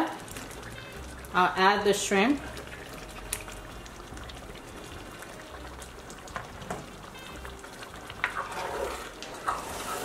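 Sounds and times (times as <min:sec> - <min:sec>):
stew simmering and bubbling: 0:00.0 - 0:10.0
spoon stirring thick stew: 0:07.8 - 0:10.0.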